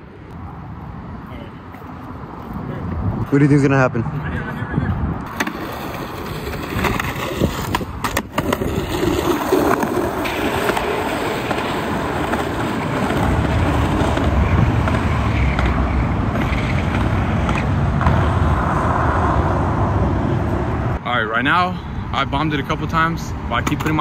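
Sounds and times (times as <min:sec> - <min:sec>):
skateboard wheels rolling on asphalt: 0:05.0 - 0:21.0.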